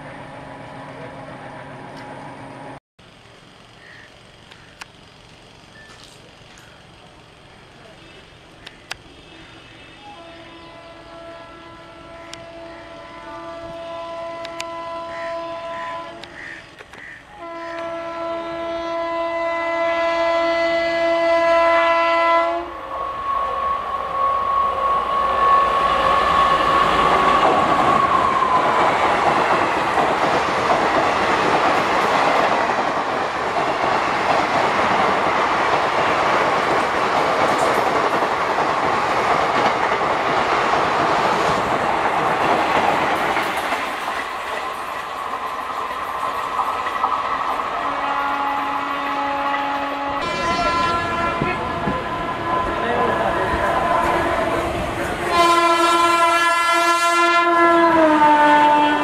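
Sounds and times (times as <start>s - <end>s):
train rumbling over rail joints: 5.4s - 59.0s
locomotive horn blasts: 9.8s - 23.4s, 47.9s - 54.5s, 55.3s - 59.0s.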